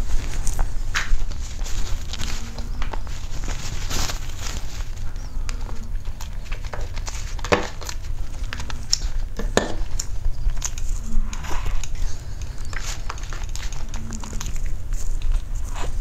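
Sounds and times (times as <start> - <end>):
soft mouth eating sounds: 4.8 - 16.0.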